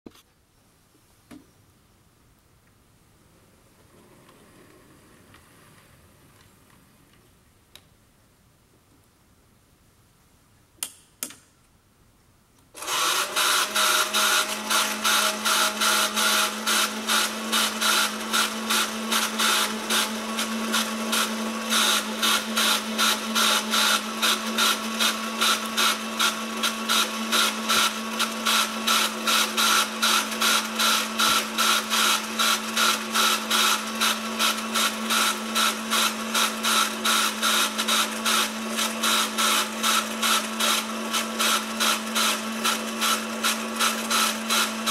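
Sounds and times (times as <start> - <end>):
small motor and gears whirring: 12.8 - 44.9.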